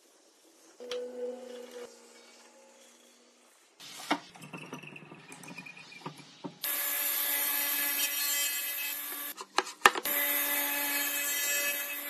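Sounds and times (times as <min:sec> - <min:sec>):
saw cutting wood: 0:06.6 - 0:09.4, 0:10.0 - 0:12.0.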